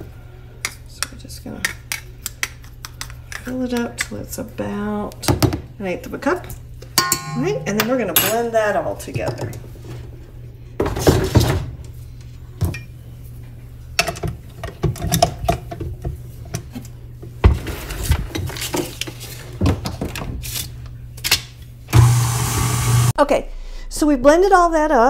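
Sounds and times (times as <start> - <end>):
kitchen utensils clinking: 6.9 - 8.6.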